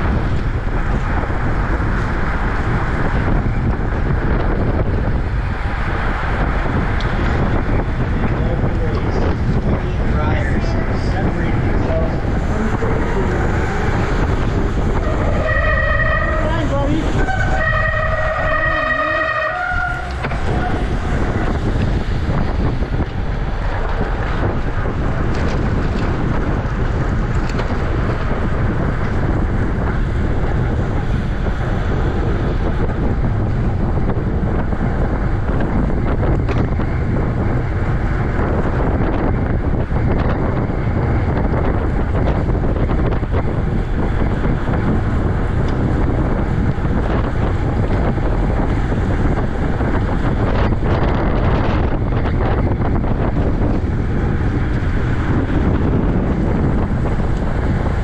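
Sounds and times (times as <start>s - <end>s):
wind buffeting microphone: 0.0s - 58.0s.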